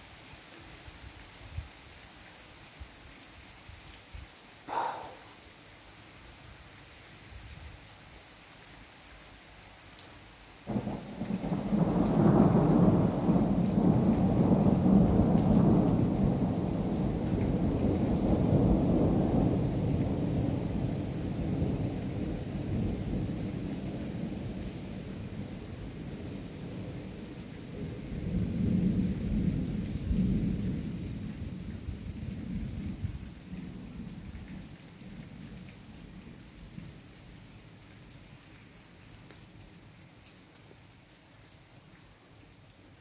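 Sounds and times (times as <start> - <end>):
steady rain: 0.0 - 43.0
thunder crack and rumble: 10.7 - 24.6.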